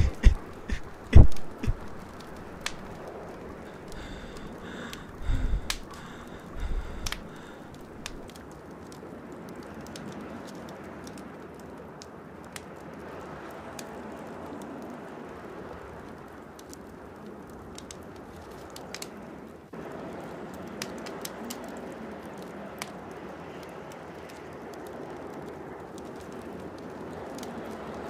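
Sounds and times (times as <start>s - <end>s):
steady hiss: 0.0s - 8.4s
campfire crackling and popping: 0.0s - 28.0s.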